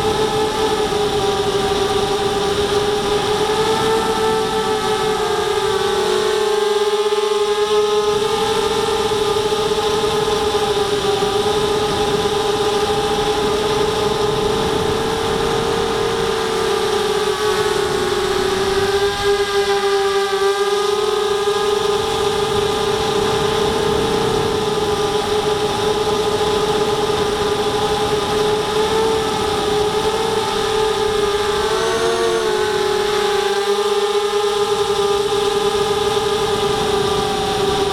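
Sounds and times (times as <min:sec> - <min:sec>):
drone motors whining: 0:00.0 - 0:37.9.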